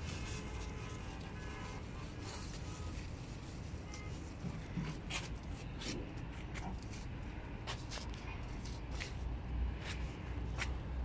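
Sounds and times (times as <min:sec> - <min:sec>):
leaves rustling: 0:00.0 - 0:06.0.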